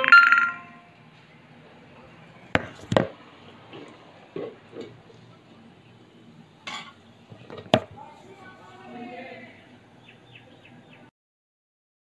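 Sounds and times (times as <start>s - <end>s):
sharp knocks: 2.6s - 3.2s.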